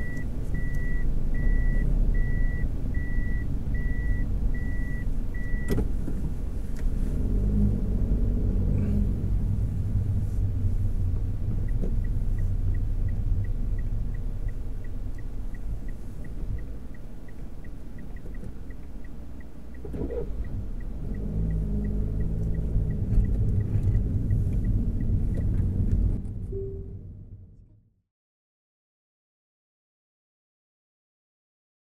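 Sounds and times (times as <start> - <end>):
turn-signal indicator ticking: 0.0 - 5.8, 11.6 - 26.0
car engine and road noise: 0.0 - 28.0.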